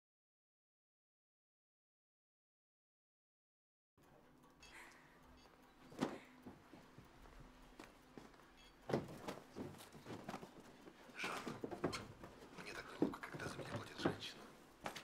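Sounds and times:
clatter of small impacts: 0:05.8 - 0:15.0
knocks and thuds: 0:08.9 - 0:10.4.

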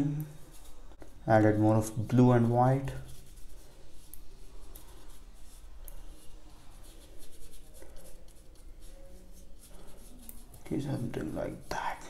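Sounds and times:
paintbrush scrubbing on paper: 0:00.0 - 0:12.0.

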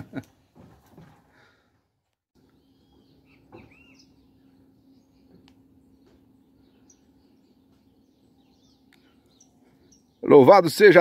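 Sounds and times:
low steady hum: 0:02.4 - 0:10.3
faint birdsong chirps: 0:02.4 - 0:11.0.

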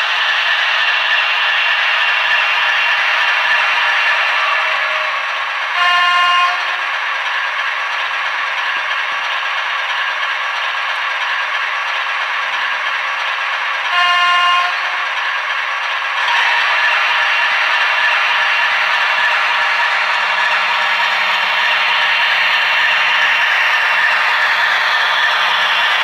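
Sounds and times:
model train running on track: 0:00.0 - 0:26.0
model train horn: 0:05.8 - 0:06.8, 0:13.9 - 0:15.0.

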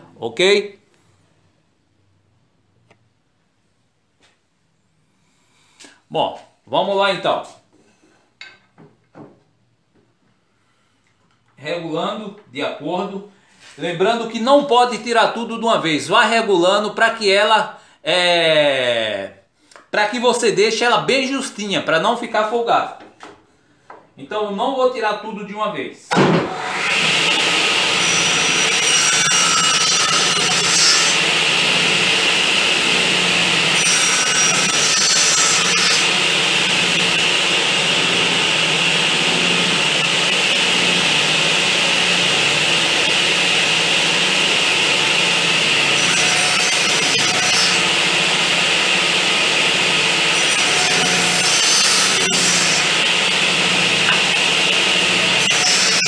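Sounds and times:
table saw running: 0:26.4 - 0:56.0
saw blade cutting wood: 0:26.5 - 0:56.0.

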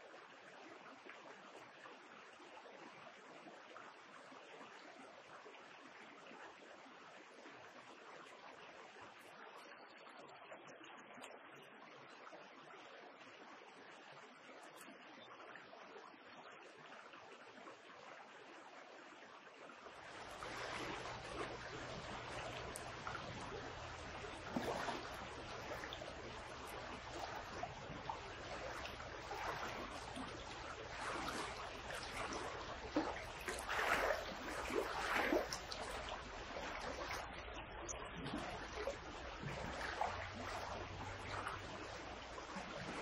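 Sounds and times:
water splashes: 0:19.4 - 0:43.0
river water rushing: 0:20.1 - 0:37.2.

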